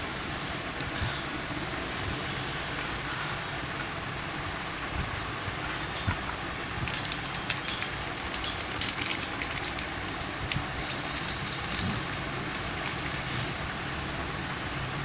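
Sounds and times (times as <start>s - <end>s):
plastic sleeve crinkling: 6.8s - 13.5s.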